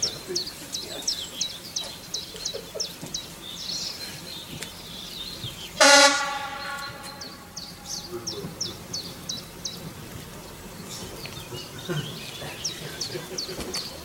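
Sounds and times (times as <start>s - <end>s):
birds chirping: 0.0s - 14.0s
railbus horn blast: 5.8s - 8.1s.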